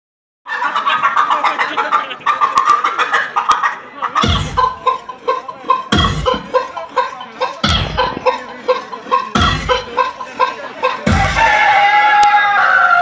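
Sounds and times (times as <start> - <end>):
clucking-like sound effect: 0.5 - 13.0
dance song played loud: 5.9 - 11.7
deep bass hits: 11.1 - 11.5.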